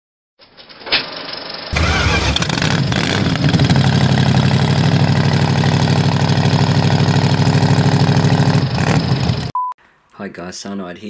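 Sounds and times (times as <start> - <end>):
engine idling: 1.7 - 9.5.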